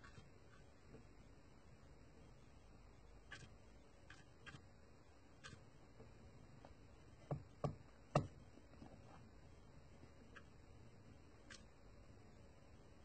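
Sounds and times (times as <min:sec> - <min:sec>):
paintbrush knocking against bowl: 0:07.2 - 0:08.4.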